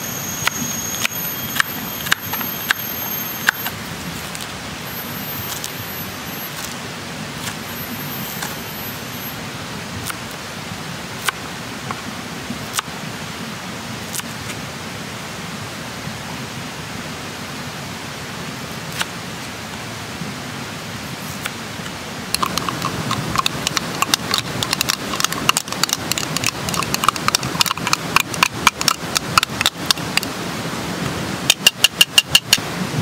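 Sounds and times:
wood fire crackling: 22.3 - 30.3.

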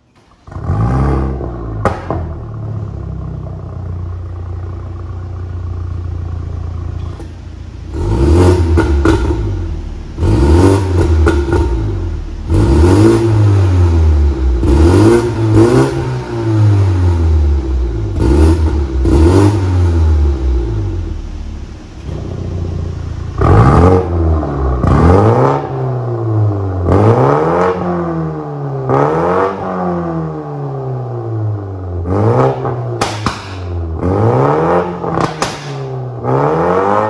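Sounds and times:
car engine starting and idling: 0.0 - 37.0
exhaust crack: 0.2 - 37.0
engine revving in quick blips: 7.9 - 21.1, 22.0 - 30.2, 32.1 - 37.0.

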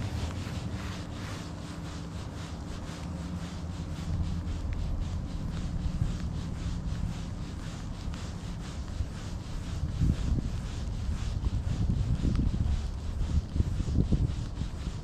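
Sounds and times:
low steady rumble: 0.0 - 15.0.

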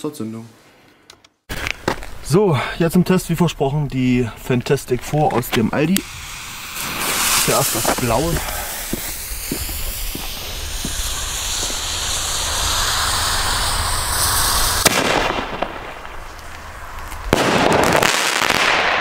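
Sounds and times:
firework fuse hissing: 1.5 - 2.8, 4.3 - 19.0
mortar launch crack: 6.0 - 19.0
firework shell bursting bang: 6.4 - 16.1.

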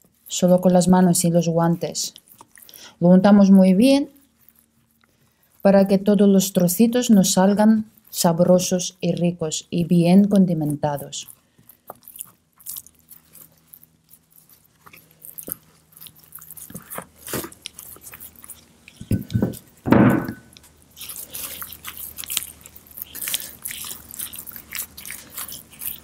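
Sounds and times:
wet squelching rubbing of meat: 0.0 - 19.8, 20.5 - 26.0
thumps: 19.1 - 20.5.

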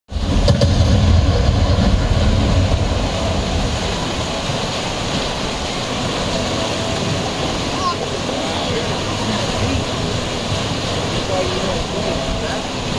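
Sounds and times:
low rumble: 0.1 - 6.4
whitewater rushing through channel: 0.1 - 12.9.

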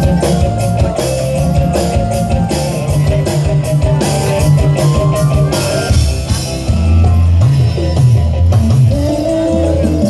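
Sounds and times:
deep bending bass line: 0.0 - 10.0
loud amplified music: 0.0 - 10.0.

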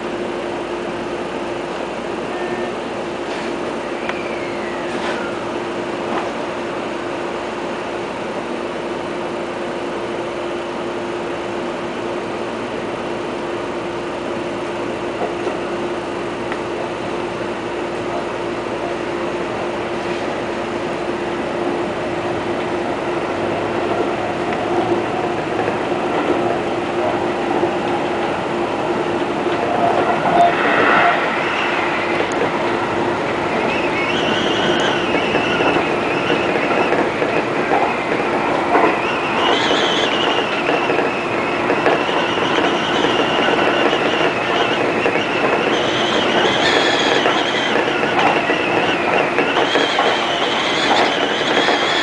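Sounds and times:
train hum: 0.0 - 52.0
train wheels rumbling: 12.6 - 52.0
faint high whine: 29.6 - 36.2.

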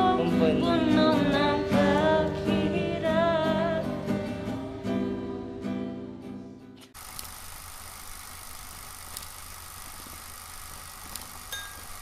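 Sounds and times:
acoustic guitar music: 0.0 - 6.9.

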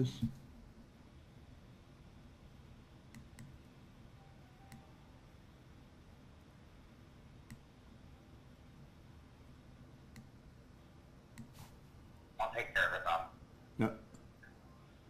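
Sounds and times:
computer mouse clicks: 3.1 - 3.6, 7.4 - 7.7, 10.1 - 10.3, 11.3 - 11.6.

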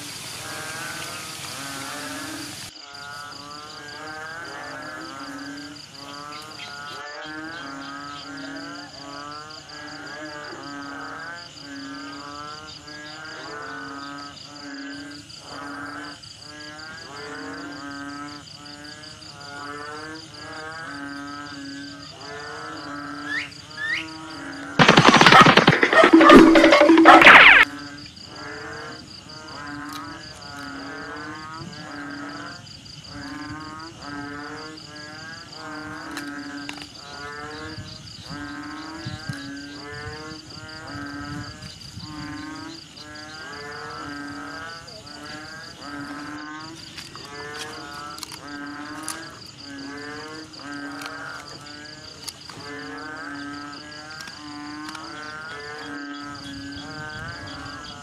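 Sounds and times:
animals calling: 23.1 - 27.7.

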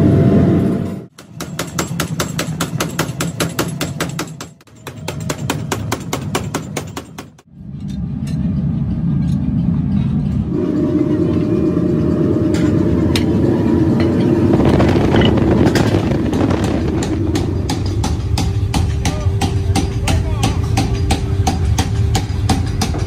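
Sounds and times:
machinery rumbling: 7.5 - 23.0.

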